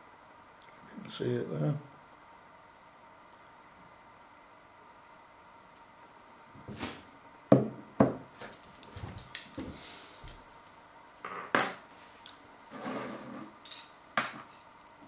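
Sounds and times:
ceramic bowl knocking on worktop: 7.5 - 8.2.

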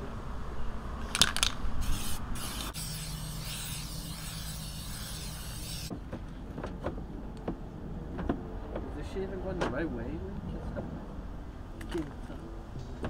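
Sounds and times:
spray paint can hissing: 1.2 - 5.9.

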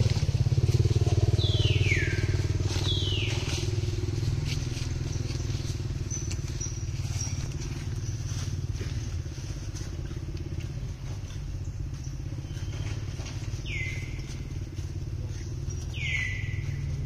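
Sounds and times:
engine low pulsing rumble: 0.0 - 17.0
whistled bird calls: 1.2 - 3.8, 12.0 - 14.6, 15.2 - 17.0.

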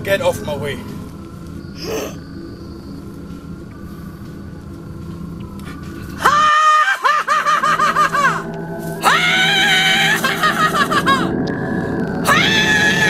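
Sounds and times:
low steady drone: 0.0 - 13.0
man cackling laugh: 6.2 - 8.5, 9.8 - 11.4.

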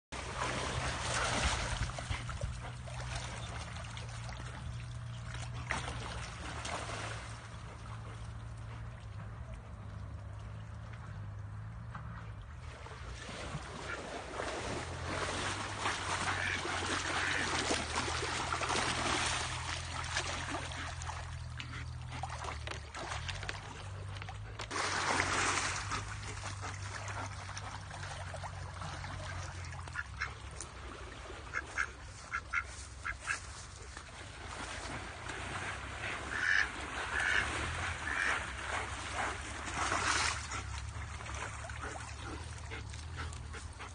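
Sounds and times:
loud splash: 0.2 - 2.2, 5.5 - 7.5, 12.6 - 21.3, 24.7 - 31.9, 34.1 - 42.4
rushing stream water: 12.7 - 43.9
ducks quacking: 16.2 - 18.2, 31.4 - 33.6, 36.0 - 38.6.

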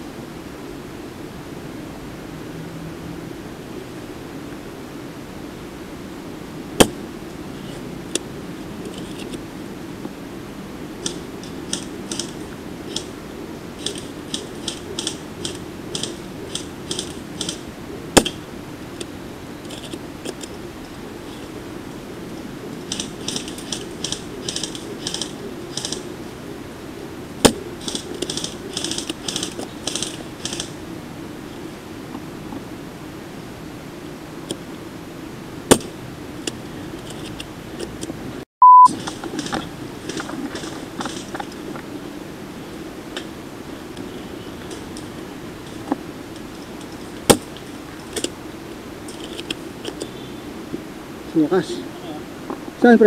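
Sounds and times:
rapid high ticking: 13.8 - 17.6, 22.8 - 26.1
airsoft rifle shots: 18.2 - 18.4.

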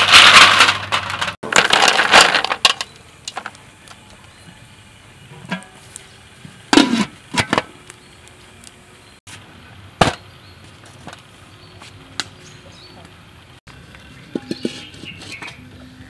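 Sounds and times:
metal pot and lid clanking: 5.3 - 5.8, 6.7 - 7.8, 14.2 - 15.7.

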